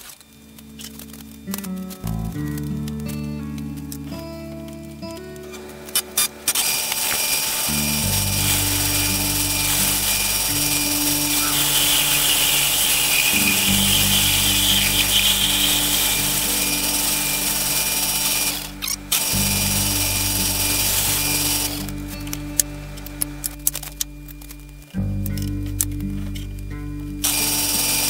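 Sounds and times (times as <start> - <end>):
background music: 0.3 - 28.0
metal lathe whirring: 5.7 - 22.2, 27.2 - 28.0
bright hiss: 6.1 - 22.3.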